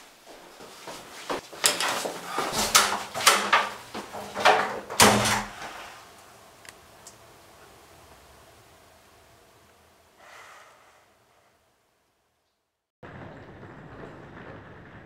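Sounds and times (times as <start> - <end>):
door knocks and clatters: 1.6 - 5.6
heavy door thud: 2.3 - 5.8.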